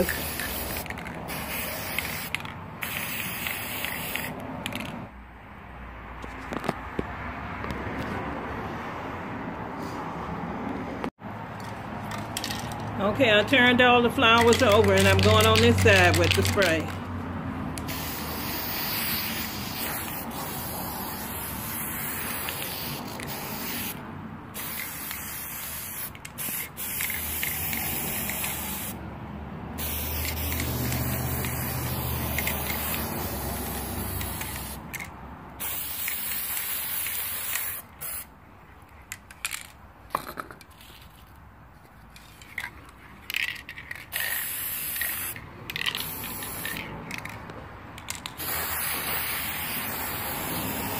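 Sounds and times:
aerosol spray can hissing: 0:00.0 - 0:04.3, 0:17.8 - 0:24.0, 0:24.6 - 0:29.0, 0:29.8 - 0:34.8, 0:35.6 - 0:38.3, 0:44.1 - 0:47.3, 0:48.4 - 0:50.9.

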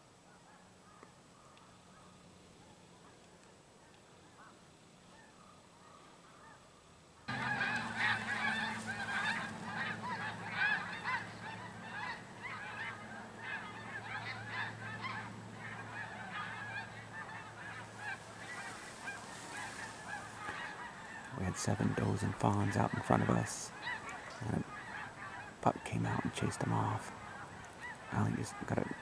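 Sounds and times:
geese honking: 0:07.3 - 0:29.0
steady low hum: 0:07.3 - 0:29.0.

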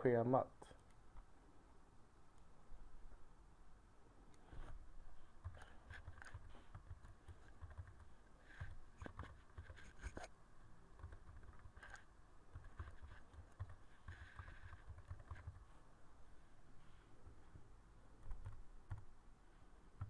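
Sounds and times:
keyboard typing: 0:05.4 - 0:10.3, 0:10.9 - 0:15.8, 0:18.2 - 0:19.1.

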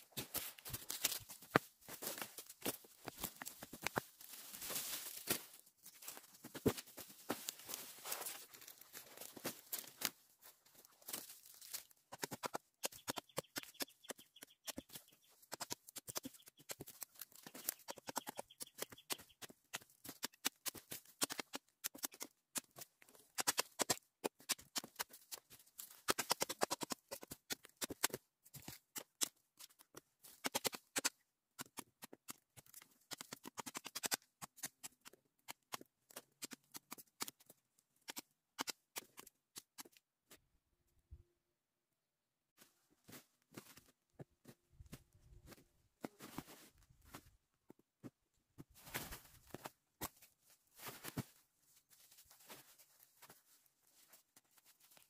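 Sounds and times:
dry stalks crackling and snapping: 0:00.0 - 0:40.0.

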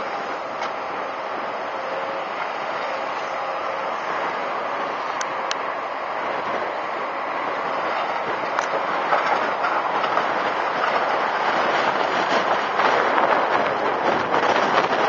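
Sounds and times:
excavator engine running: 0:00.0 - 0:15.0.

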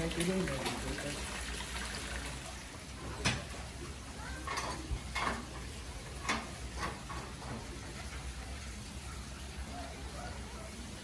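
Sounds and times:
sharp clicks and knocks: 0:04.5 - 0:08.2.

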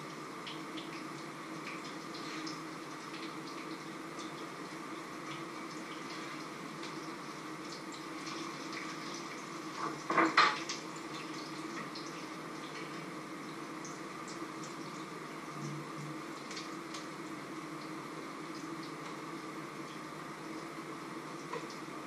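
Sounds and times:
food sizzling in a pan: 0:00.0 - 0:15.5.

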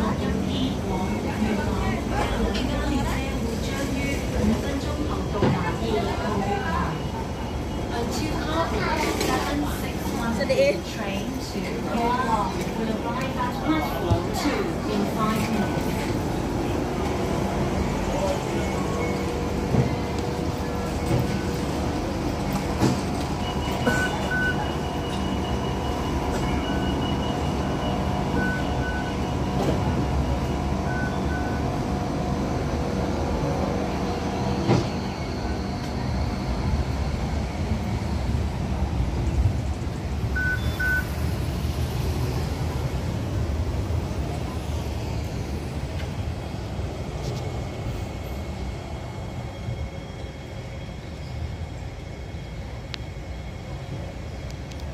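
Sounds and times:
train low rumble: 0:00.0 - 0:54.9
short high beeps: 0:40.4 - 0:41.2.

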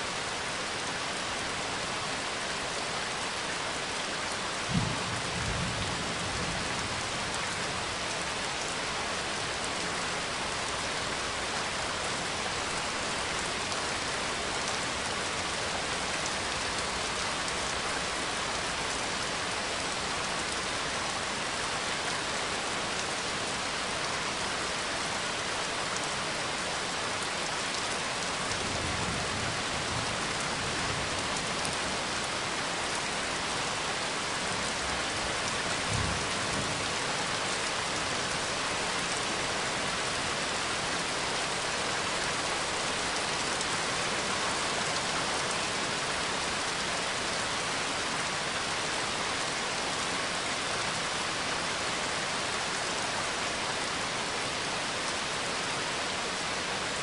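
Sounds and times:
heavy rain: 0:00.0 - 0:57.0
low rumble of thunder: 0:04.7 - 0:07.1.

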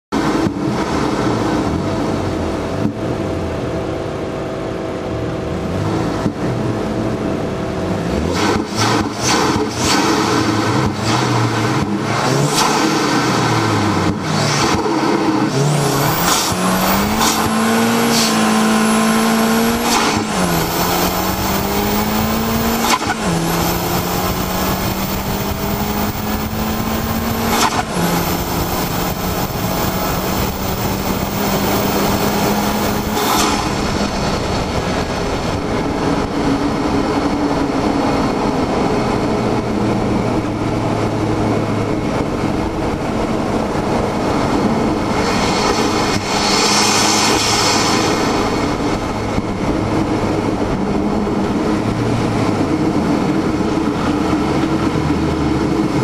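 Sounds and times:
car engine accelerating: 0:00.1 - 0:56.0
wind and road noise: 0:00.1 - 0:56.0.

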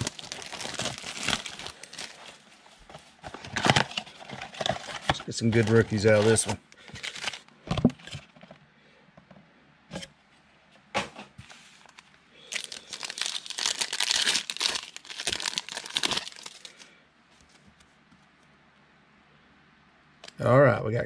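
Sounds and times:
card pack wrappers crinkling: 0:00.0 - 0:07.5, 0:11.8 - 0:16.9.

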